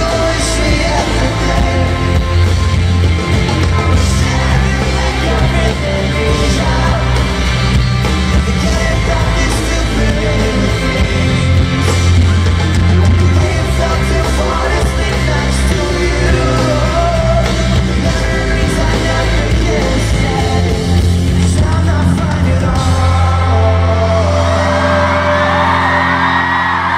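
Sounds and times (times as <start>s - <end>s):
live rock band playing: 0.0s - 26.9s
man singing: 0.0s - 26.9s
audience screaming: 24.0s - 26.9s.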